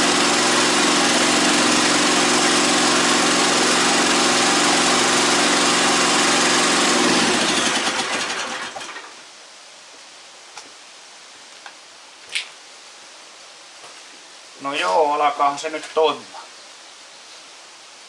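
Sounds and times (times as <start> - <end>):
hydraulic motor and pump running: 0.0 - 9.0.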